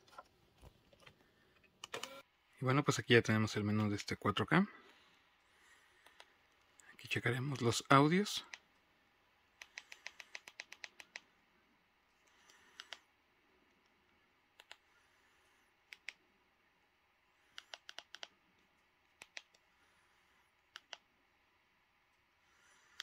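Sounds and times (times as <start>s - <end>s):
quiet sharp clicks: 9.6s - 11.3s, 12.3s - 13.1s, 17.5s - 18.4s, 19.1s - 19.6s, 20.7s - 21.0s.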